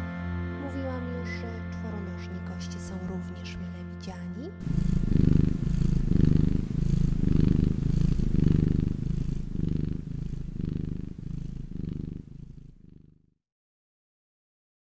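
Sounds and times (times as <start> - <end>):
cat purring: 4.5 - 13.4.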